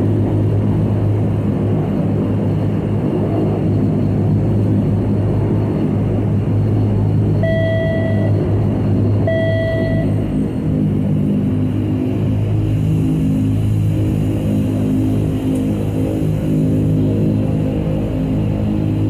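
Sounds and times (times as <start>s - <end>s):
turboprop engines droning: 0.0s - 19.0s
clear tone: 7.4s - 8.4s, 9.2s - 10.2s.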